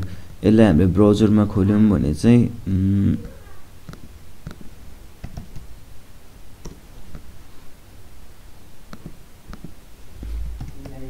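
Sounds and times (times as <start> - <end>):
faint low hum: 0.0 - 11.0
computer keyboard and mouse clicks: 3.9 - 5.7, 10.5 - 11.0.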